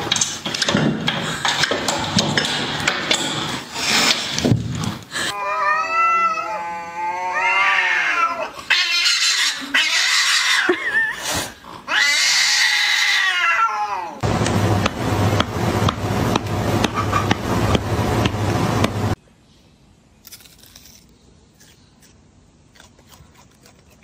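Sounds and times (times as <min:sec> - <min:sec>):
cats yowling: 0:05.4 - 0:10.8, 0:11.9 - 0:14.2
cats hissing screeches: 0:07.3 - 0:14.2
steady low hum: 0:14.2 - 0:19.2.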